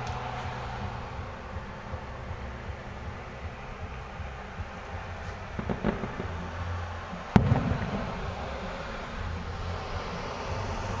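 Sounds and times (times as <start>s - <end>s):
rumbling echo: 0.0s - 11.0s
firework shell bang: 5.6s - 6.4s, 7.3s - 8.4s.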